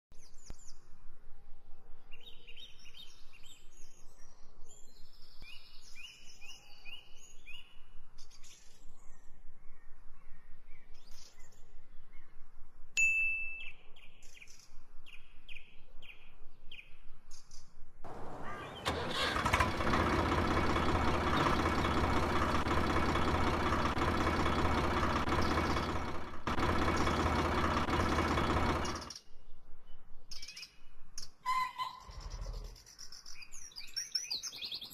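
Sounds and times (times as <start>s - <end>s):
small birds chirping: 13.6s - 19.6s, 20.5s - 34.9s
motor humming: 18.1s - 29.1s.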